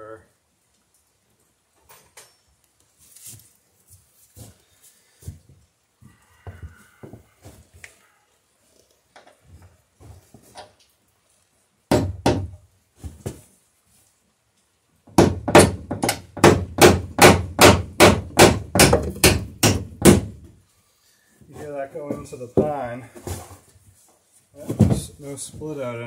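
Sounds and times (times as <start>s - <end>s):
hammer hitting nail into wood: 11.9s - 12.6s, 15.1s - 20.5s.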